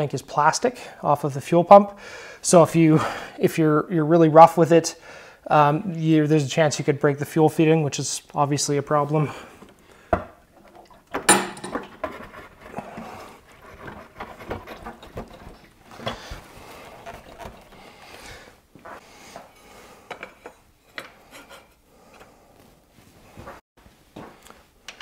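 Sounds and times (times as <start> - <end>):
fuel tank knocking onto mounts: 11.1 - 12.1
small clicks and rattles of parts: 24.4 - 25.0.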